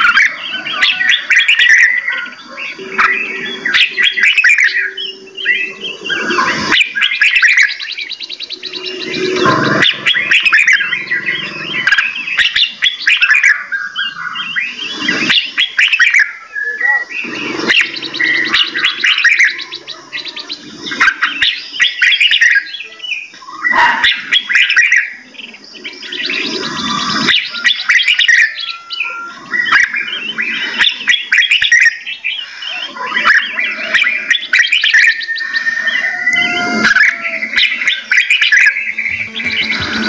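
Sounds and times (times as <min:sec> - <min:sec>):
songbirds chirping: 0:00.0 - 0:40.0.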